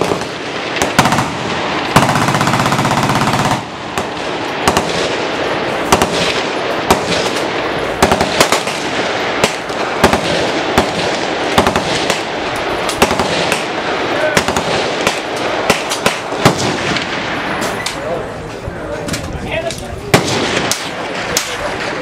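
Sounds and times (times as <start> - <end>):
machine gun fire: 0.0 - 17.6.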